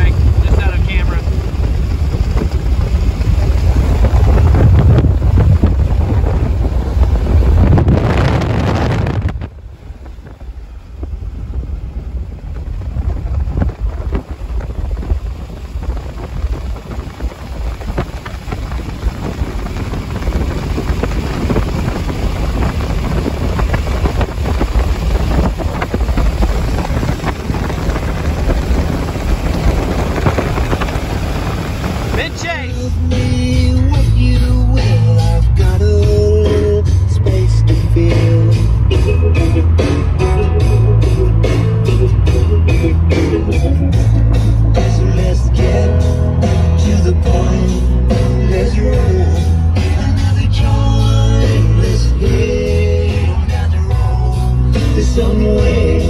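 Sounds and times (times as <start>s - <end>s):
wind buffeting microphone: 0.0s - 34.3s
vehicle road noise: 0.0s - 56.0s.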